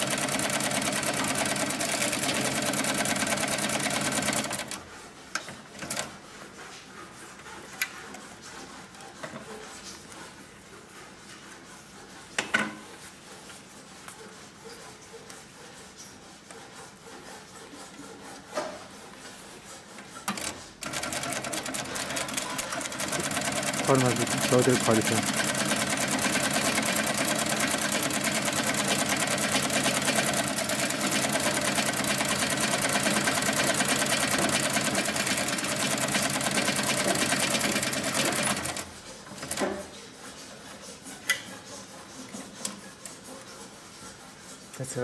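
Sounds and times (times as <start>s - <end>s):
industrial sewing machine running: 0.0s - 4.8s, 20.3s - 39.6s.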